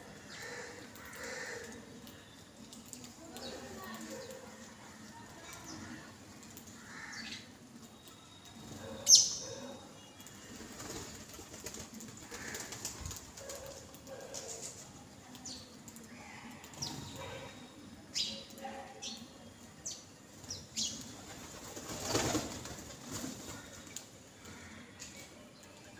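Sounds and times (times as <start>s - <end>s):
sparrows chirping: 0.0s - 11.1s, 12.5s - 21.5s.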